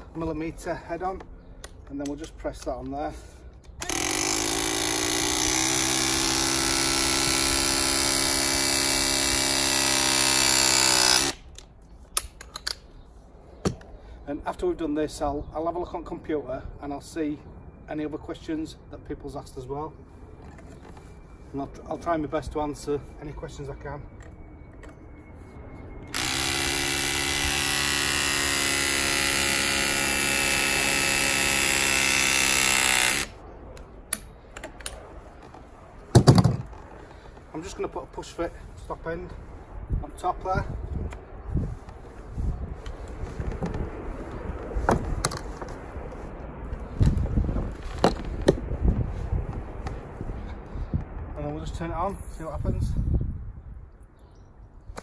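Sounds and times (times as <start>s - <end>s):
hydraulic press tool motor whine: 3.8s - 11.4s, 26.1s - 33.3s.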